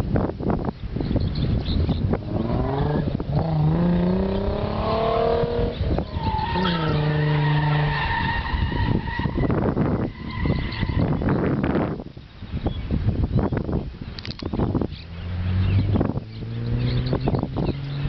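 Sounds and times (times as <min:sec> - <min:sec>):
car engine revving: 0:02.1 - 0:09.2, 0:14.9 - 0:18.0
tyre squeal: 0:05.6 - 0:11.3.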